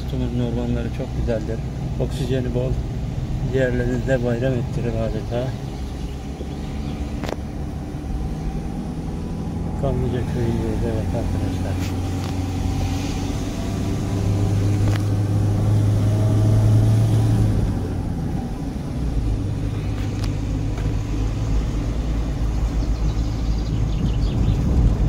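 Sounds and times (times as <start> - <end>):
car engine hum: 0.0 - 25.0
road noise inside car: 0.0 - 25.0.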